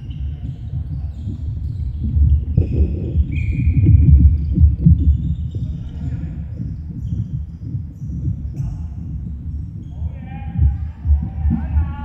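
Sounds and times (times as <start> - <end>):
shoe squeaks: 0.0 - 11.0.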